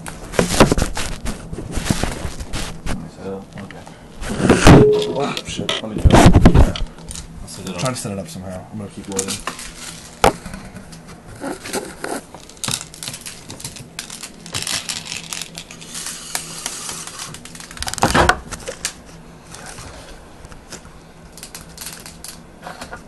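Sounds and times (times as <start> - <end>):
plastic pellets rattling and clicking: 12.4 - 18.0, 21.4 - 22.4.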